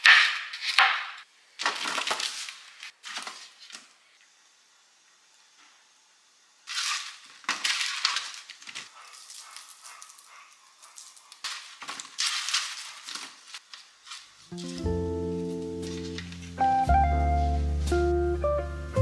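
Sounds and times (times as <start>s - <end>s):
potatoes tossed on parchment paper: 1.6s - 3.9s, 6.6s - 10.3s, 10.9s - 16.6s
seasoning shaker rattling: 6.6s - 16.6s.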